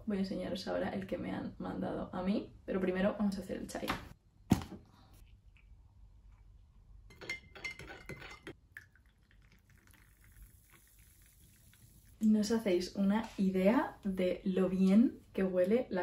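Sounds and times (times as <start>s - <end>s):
spoon clinking against cup: 7.1s - 8.6s.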